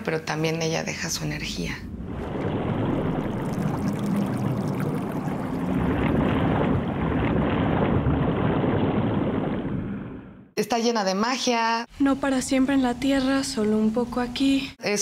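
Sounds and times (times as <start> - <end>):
water churning and bubbling: 1.3 - 10.6.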